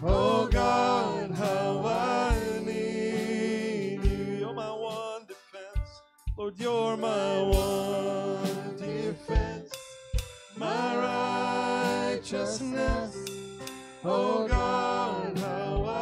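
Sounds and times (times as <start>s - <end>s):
people singing long notes: 0.0s - 4.6s, 7.2s - 9.8s, 10.6s - 13.3s, 14.0s - 16.0s
acoustic guitar: 0.0s - 16.0s
keyboard: 0.0s - 16.0s
soft drum beats: 0.0s - 16.0s.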